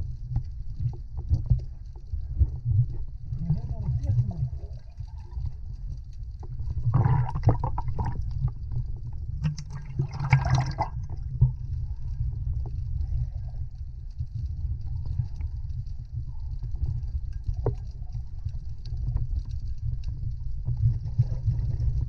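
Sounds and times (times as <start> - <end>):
muffled underwater rumble: 0.0 - 22.0
noisy water bursts: 9.4 - 11.2.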